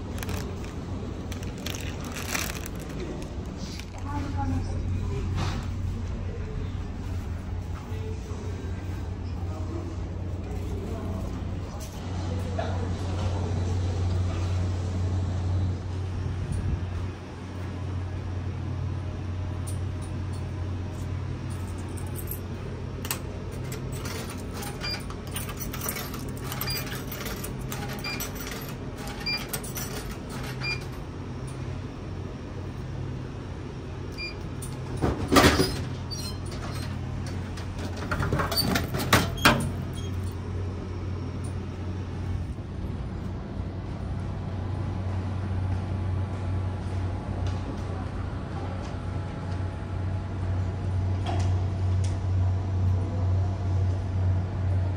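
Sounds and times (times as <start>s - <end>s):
low ferry hum: 0.0s - 54.9s
coins clicking into machine: 23.1s - 31.0s.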